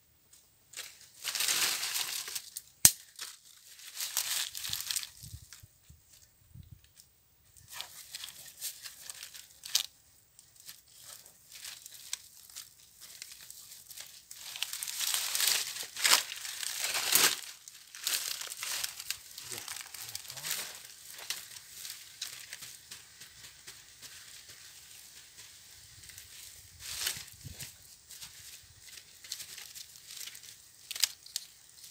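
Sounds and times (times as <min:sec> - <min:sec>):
dry leaves crackling: 0:00.7 - 0:06.2, 0:07.6 - 0:31.9.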